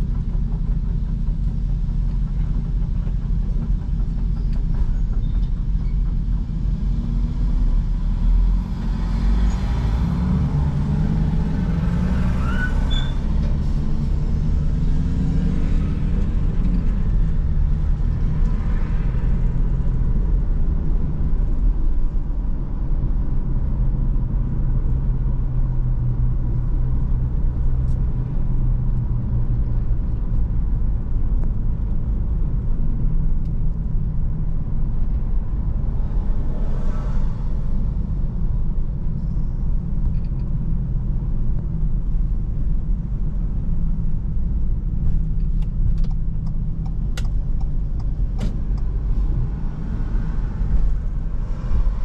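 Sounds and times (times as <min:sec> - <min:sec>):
car engine accelerating: 0:00.0 - 0:52.0.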